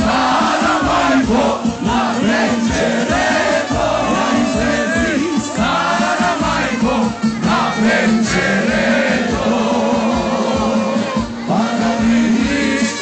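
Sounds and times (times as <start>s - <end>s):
live band music: 0.0s - 13.0s
man singing into microphone: 0.0s - 13.0s.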